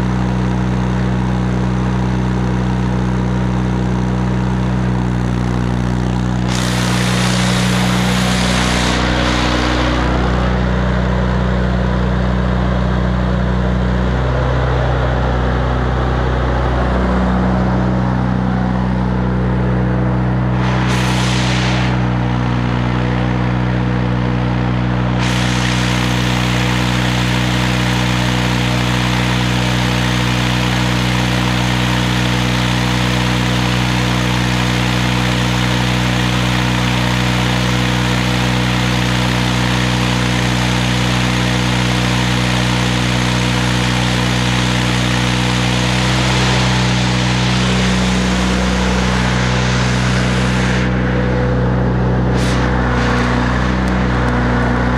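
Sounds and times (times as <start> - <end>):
welder engine running: 0.0 - 54.9
welding arc crackle: 5.3 - 10.9, 20.4 - 23.6, 24.8 - 51.2, 52.2 - 54.9.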